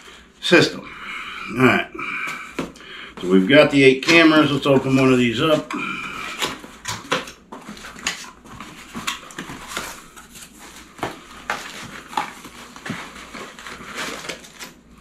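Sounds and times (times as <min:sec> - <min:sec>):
cardboard box being unpacked: 0:05.5 - 0:15.0.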